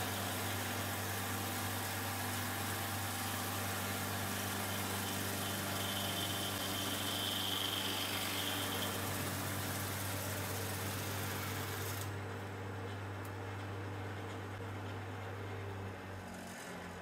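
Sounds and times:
cutter hissing through log: 4.2 - 12.1
electric motor hum: 4.4 - 12.1.

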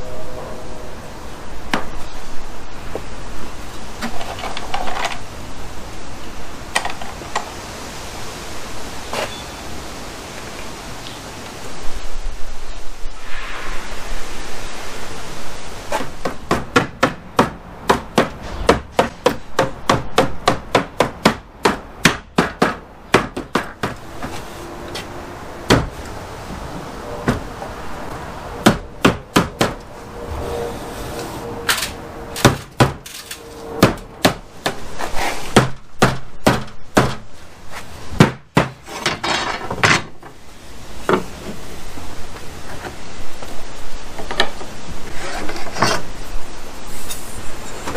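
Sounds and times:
hammer knocking on lumber: 16.2 - 24.0, 25.7 - 25.9, 35.6 - 37.2, 38.2 - 38.8.

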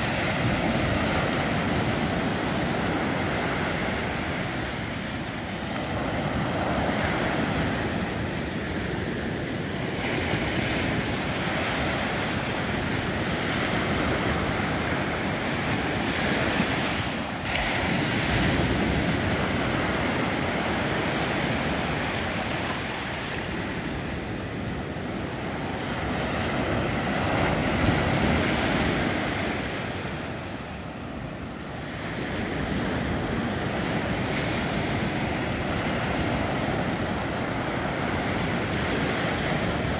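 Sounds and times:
surf breaking on beach: 0.0 - 39.9
wind buffeting microphone: 0.0 - 39.9.

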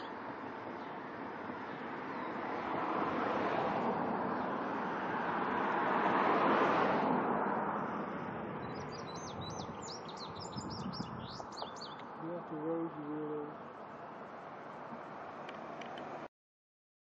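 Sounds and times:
vehicle passing: 0.0 - 16.3
songbird chirping and whistling: 8.6 - 12.1.

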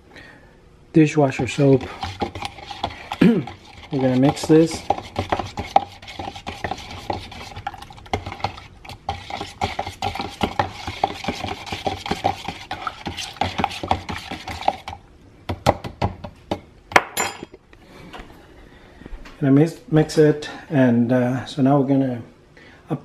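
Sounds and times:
metal spoon stirring in bowl: 1.3 - 15.0.

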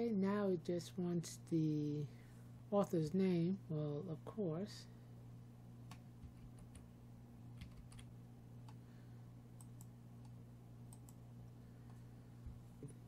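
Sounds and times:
steady low hum: 0.0 - 13.0
keyboard typing: 5.9 - 6.9, 7.6 - 8.1.

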